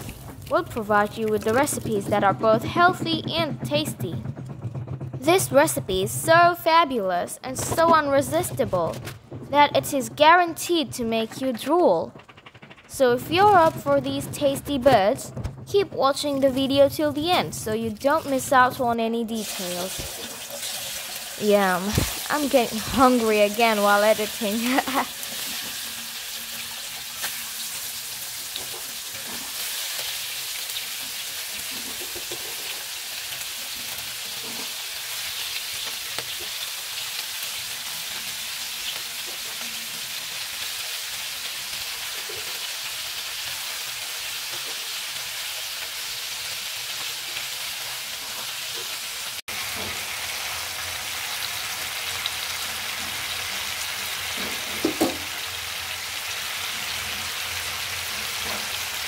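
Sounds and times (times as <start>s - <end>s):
small crackles: 11.6s - 13.9s
oil sizzling in a frying pan: 19.3s - 59.0s.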